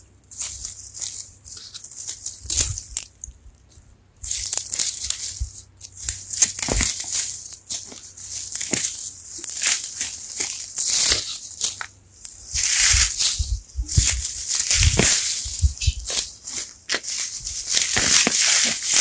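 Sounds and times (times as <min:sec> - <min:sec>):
food crunching and rustling: 0:04.3 - 0:19.0.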